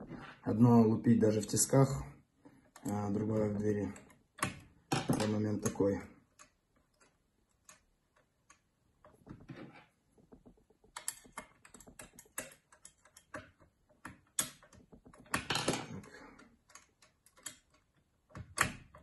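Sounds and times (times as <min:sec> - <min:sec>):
lock picks clicking and scraping: 0:02.6 - 0:09.3, 0:10.5 - 0:19.0.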